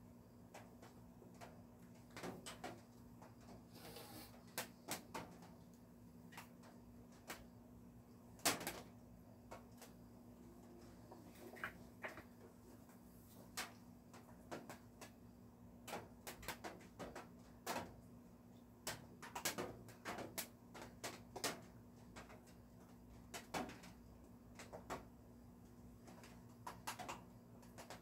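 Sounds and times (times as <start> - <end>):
raindrops ticking on a roof: 0.4 - 7.5, 13.5 - 28.0.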